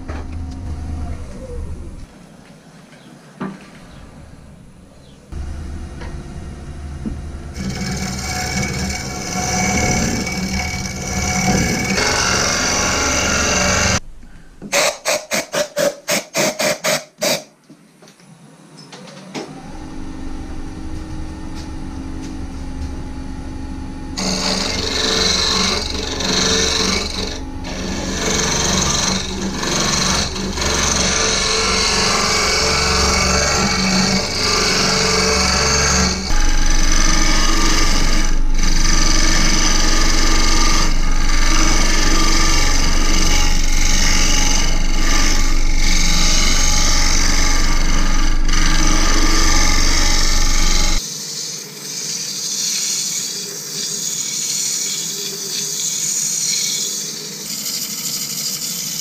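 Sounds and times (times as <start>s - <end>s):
wood lathe motor hum: 5.3s - 14.0s, 19.5s - 59.0s
hollowing tool scraping wood: 7.5s - 14.0s, 24.2s - 59.0s.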